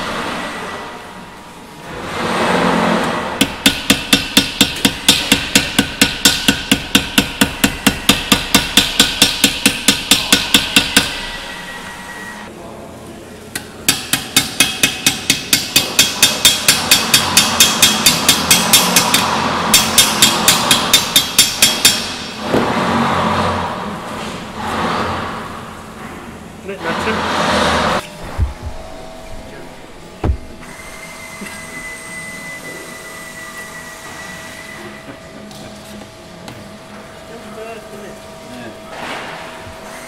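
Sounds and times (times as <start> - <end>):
hammer tapping metal: 3.4 - 11.5, 13.9 - 22.3.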